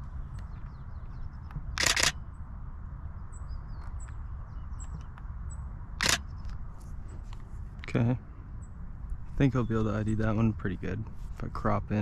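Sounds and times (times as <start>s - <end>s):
low steady rumble: 0.0s - 12.0s
camera shutter firing: 1.7s - 2.2s, 6.0s - 6.2s
faint high bird chirps: 3.2s - 7.3s.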